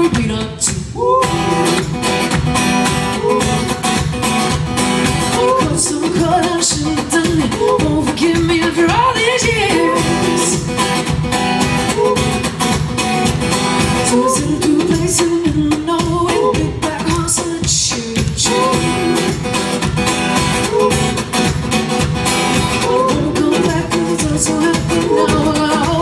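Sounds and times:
woman singing: 0.0s - 1.9s, 5.1s - 10.8s, 13.8s - 19.5s, 22.6s - 26.0s
strummed acoustic guitar: 0.0s - 26.0s.

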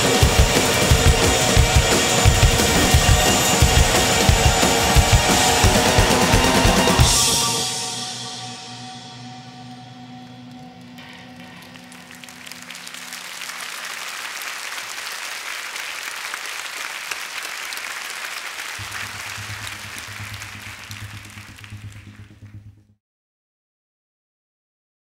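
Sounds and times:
audience applauding: 0.0s - 7.8s, 10.7s - 22.6s
band playing held notes: 0.0s - 14.8s, 18.8s - 22.9s
low steady hum: 18.8s - 22.9s.

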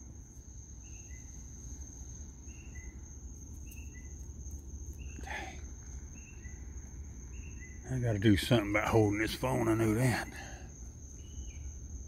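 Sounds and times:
insect high-pitched trill: 0.0s - 12.0s
insect two-note chirp: 2.5s - 4.3s, 6.1s - 7.9s.

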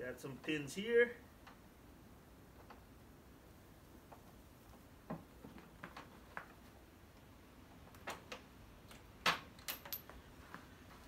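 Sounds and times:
metal pins clinking: 8.9s - 10.2s.

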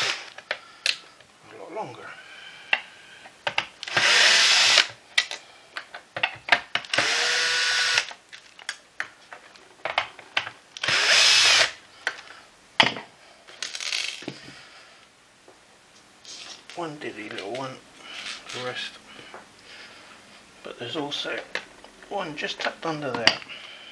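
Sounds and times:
cordless drill whirring: 0.0s - 0.4s, 3.8s - 4.9s, 6.9s - 8.1s, 10.8s - 11.8s.

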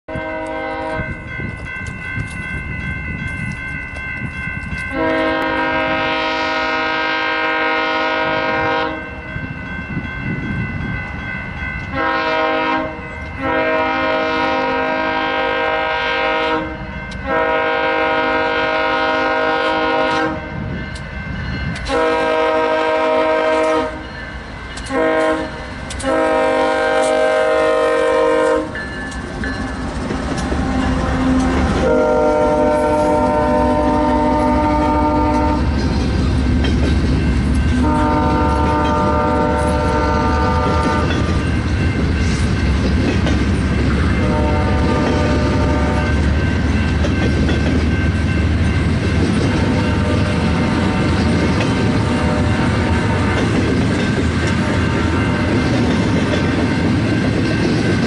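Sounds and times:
locomotive air horn blasts: 0.1s - 1.2s, 4.9s - 9.2s, 11.9s - 20.6s, 21.8s - 24.1s, 24.9s - 28.8s, 30.6s - 35.8s, 37.8s - 41.3s, 44.2s - 46.2s, 49.6s - 51.2s, 51.9s - 53.5s
train rumble: 0.1s - 58.0s.

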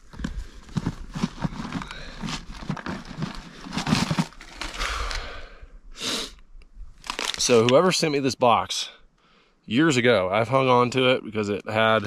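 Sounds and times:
rummaging in plastic box: 0.0s - 5.2s, 7.0s - 7.7s.

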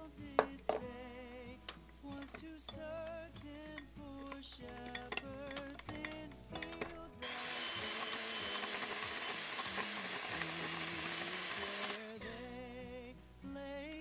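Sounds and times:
background music: 0.0s - 14.0s
electric hand mixer running: 7.2s - 12.2s.

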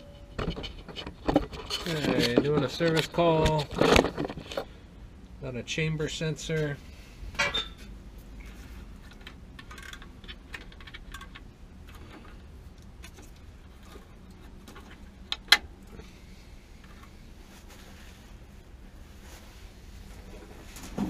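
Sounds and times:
clicks and rattles of handling: 0.4s - 4.7s, 9.0s - 16.0s.

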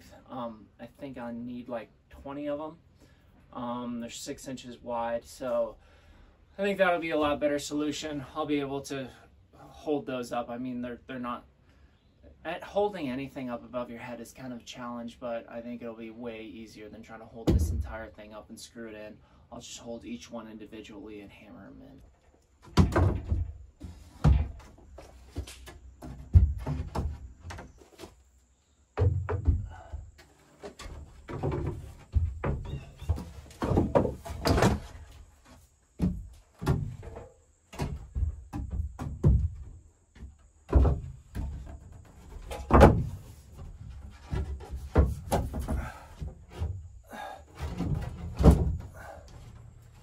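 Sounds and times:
wooden planks knocking and thudding: 17.4s - 18.0s, 22.6s - 28.2s, 28.9s - 50.0s.

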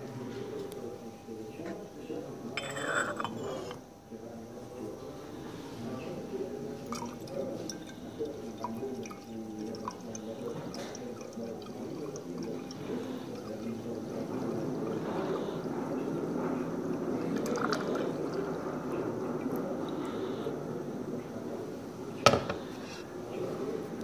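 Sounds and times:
liquid pouring into glass pitcher: 1.3s - 4.2s, 5.8s - 20.3s.

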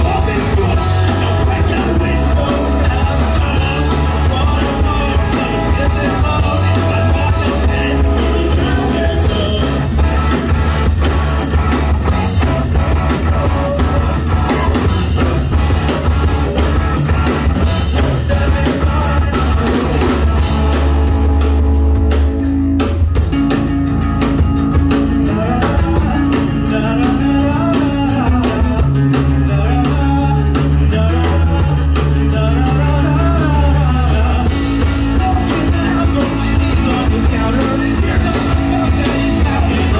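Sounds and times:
rock band playing live: 0.0s - 39.9s.

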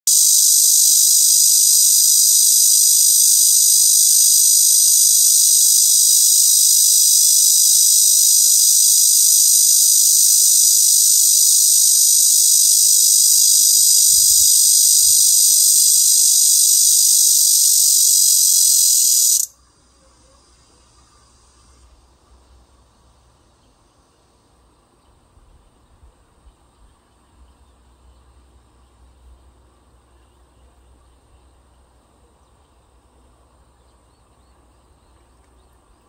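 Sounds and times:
cicada buzzing: 0.1s - 19.6s.

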